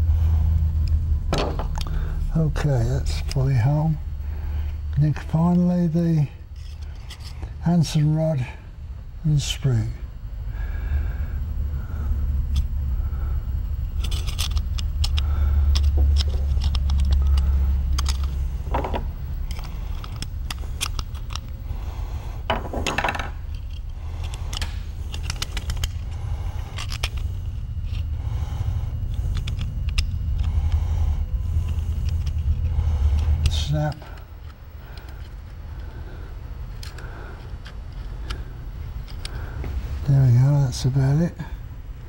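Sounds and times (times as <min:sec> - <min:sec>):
steady low hum: 0:00.0 - 0:42.0
metal parts clicking and scraping: 0:04.9 - 0:07.6, 0:13.8 - 0:28.2, 0:29.0 - 0:36.0, 0:36.6 - 0:39.4.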